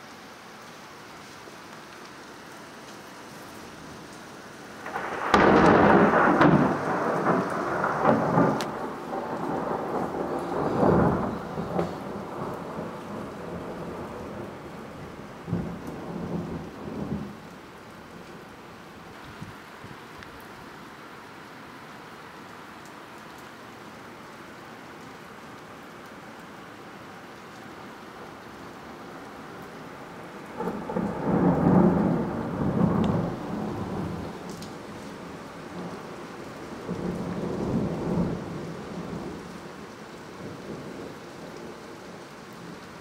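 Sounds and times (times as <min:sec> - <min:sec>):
steady rain: 0:00.0 - 0:43.0
thunder rumbling: 0:04.8 - 0:17.7, 0:29.4 - 0:39.6.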